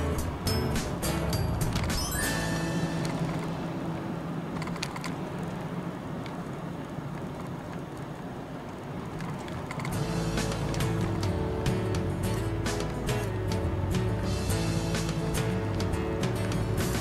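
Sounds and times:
car cabin road and engine noise: 0.0s - 17.0s
sharp clicks: 4.5s - 6.4s.

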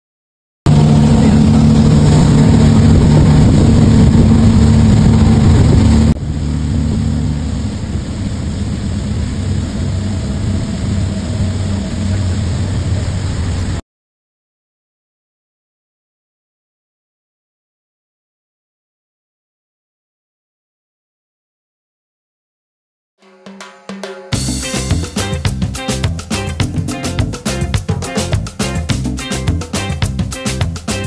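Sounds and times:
motorboat engine running: 0.7s - 13.8s, 24.4s - 31.0s
wind and water rushing: 0.7s - 13.8s.

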